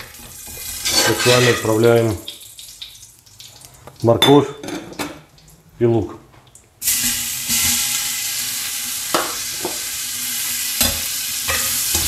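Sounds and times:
vegetables sizzling in fat: 0:06.8 - 0:12.0.

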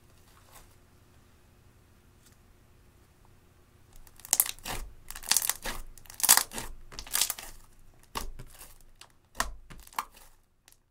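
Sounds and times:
slime squished by hand: 0:04.0 - 0:10.8.

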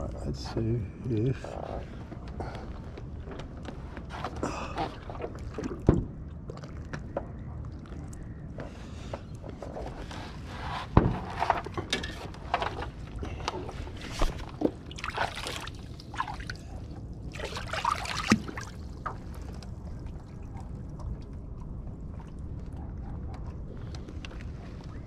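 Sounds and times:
water splashing against kayak: 0:13.6 - 0:21.4.

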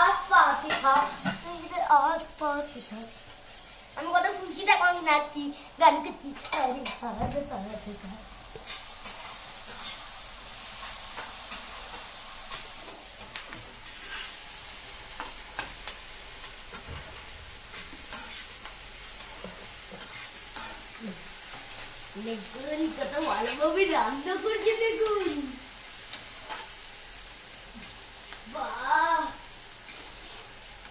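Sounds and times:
food sizzling in a wok: 0:00.0 - 0:30.9
spatula scraping and tapping pan: 0:00.5 - 0:01.5, 0:06.3 - 0:07.4, 0:08.5 - 0:10.1, 0:10.8 - 0:14.4, 0:15.1 - 0:22.0, 0:24.5 - 0:25.4, 0:26.1 - 0:26.8.

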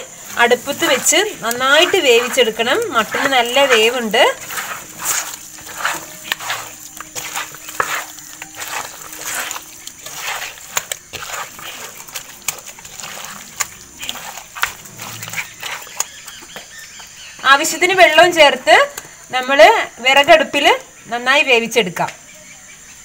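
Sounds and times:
hands squelching marinated meat: 0:00.0 - 0:17.3.

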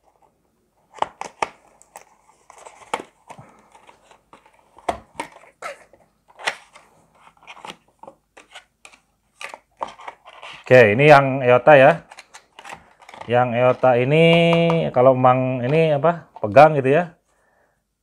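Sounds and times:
cardboard and plastic rustling: 0:00.0 - 0:10.8, 0:11.9 - 0:15.0.

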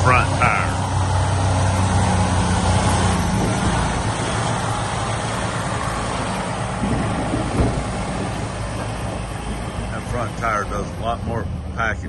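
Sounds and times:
truck engine humming: 0:00.0 - 0:12.0
thump: 0:06.8 - 0:08.4.

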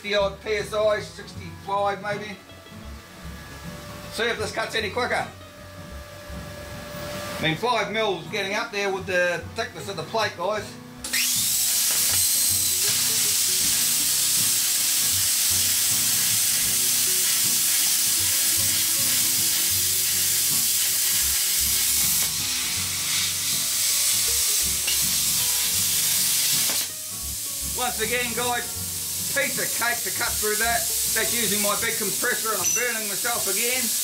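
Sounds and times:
plasma cutter hissing: 0:11.1 - 0:34.0.

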